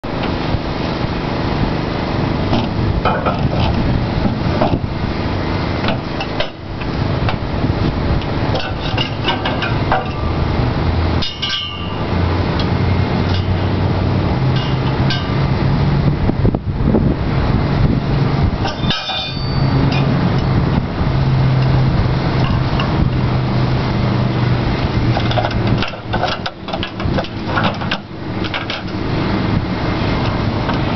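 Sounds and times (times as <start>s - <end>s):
steady low hum: 0.0s - 30.9s
steel parts clanking: 8.5s - 10.4s, 11.2s - 13.7s, 14.5s - 15.4s, 18.6s - 20.2s.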